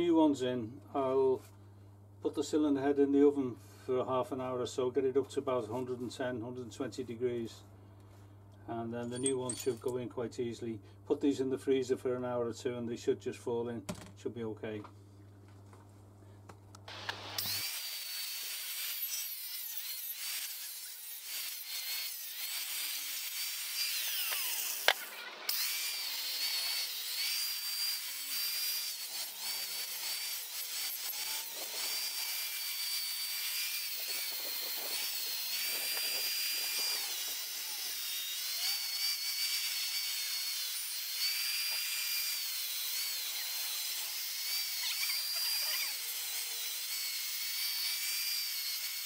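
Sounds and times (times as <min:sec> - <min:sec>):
angle grinder on metal: 0:16.9 - 0:49.0.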